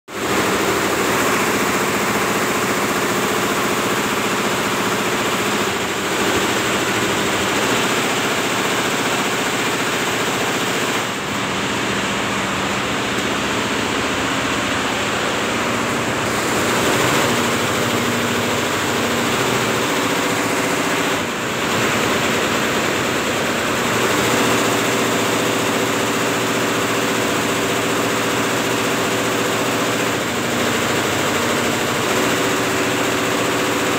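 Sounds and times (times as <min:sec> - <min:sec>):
embroidery machine running: 0:00.1 - 0:33.9.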